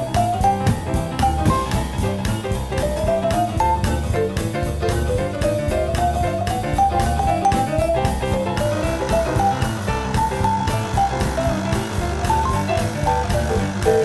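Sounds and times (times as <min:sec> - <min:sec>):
jazzy piano and drum music: 0:00.0 - 0:14.0.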